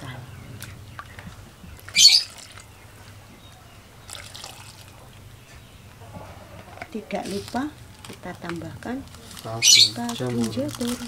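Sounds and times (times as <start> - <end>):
liquid pouring and trickling: 1.8 - 3.2, 4.0 - 5.2.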